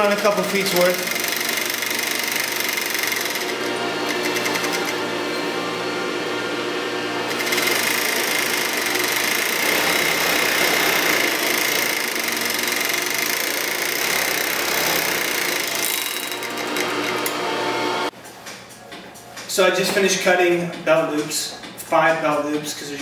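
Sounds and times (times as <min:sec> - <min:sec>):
sewing machine running: 0:00.0 - 0:18.1.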